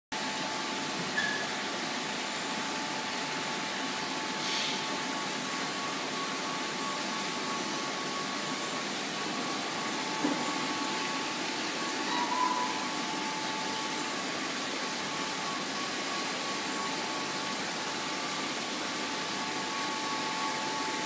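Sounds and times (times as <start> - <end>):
aquarium pumps and water hiss: 0.2 - 21.0.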